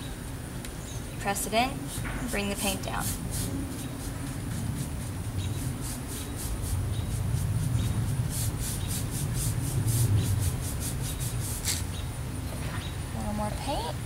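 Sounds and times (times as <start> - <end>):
steady low rumble: 0.0 - 14.0
paintbrush strokes on wood: 1.4 - 11.9.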